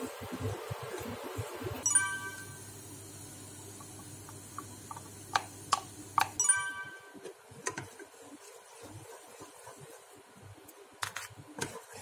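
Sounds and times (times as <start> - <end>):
low steady hum: 1.6 - 7.7
bell-like ringing clink: 1.9 - 2.6.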